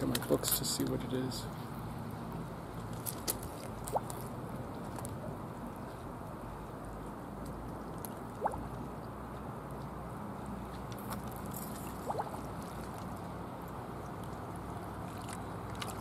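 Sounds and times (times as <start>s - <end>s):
small waves lapping on rocks: 11.1s - 16.0s.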